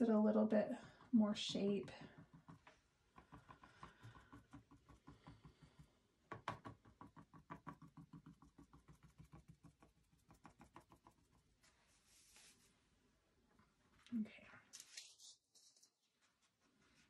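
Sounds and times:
paintbrush tapping on canvas: 0:00.8 - 0:11.3
soft brushing: 0:11.6 - 0:13.0, 0:14.7 - 0:17.0.

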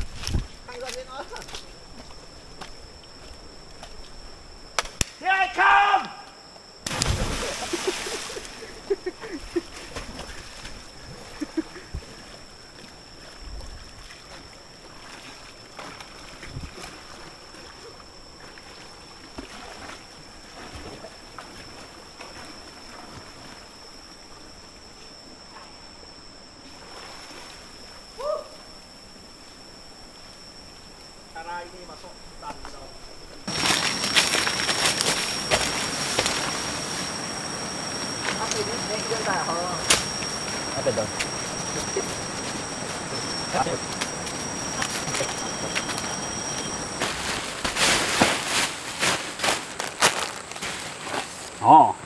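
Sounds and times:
big splash into river: 0:06.8 - 0:08.6
swimming splashes and lapping water: 0:07.0 - 0:23.8
steady high-pitched tone: 0:27.7 - 0:48.7.

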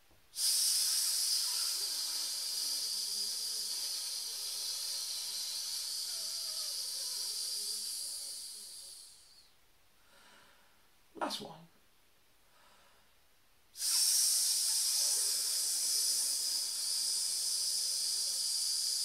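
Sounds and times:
man hissing through teeth: 0:00.3 - 0:09.4, 0:13.8 - 0:19.0.

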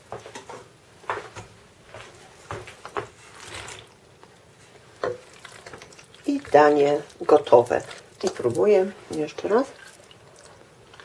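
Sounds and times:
pasta scraping into pan: 0:03.1 - 0:04.0, 0:04.6 - 0:11.0.

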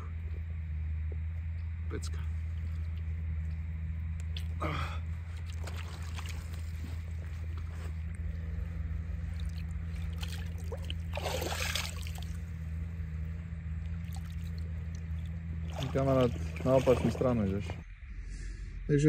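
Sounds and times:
low rumble: 0:00.0 - 0:19.0
water sloshing and trickling: 0:02.2 - 0:17.9
fish splash: 0:09.4 - 0:12.4, 0:14.0 - 0:17.3.

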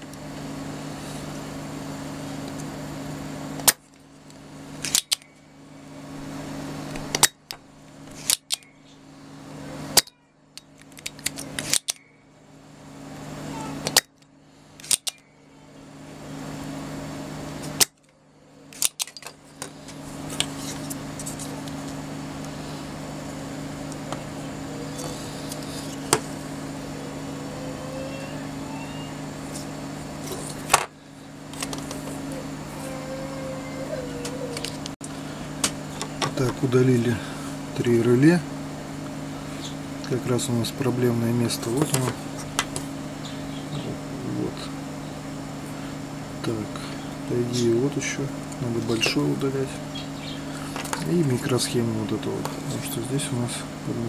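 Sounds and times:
steady low hum: 0:00.0 - 0:54.0
desoldering pump snapping: 0:03.6 - 0:05.3, 0:06.9 - 0:08.7, 0:10.0 - 0:12.1, 0:13.8 - 0:15.2, 0:17.6 - 0:22.6.

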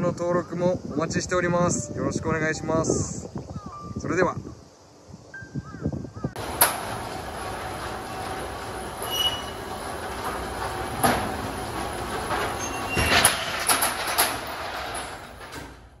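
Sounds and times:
metal shutter rattling: 0:06.4 - 0:16.0.

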